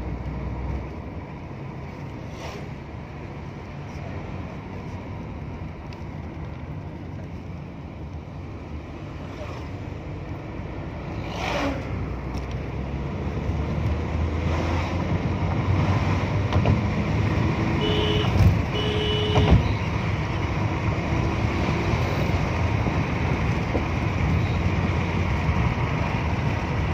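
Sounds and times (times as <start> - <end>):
car engine and road noise: 0.0 - 26.9.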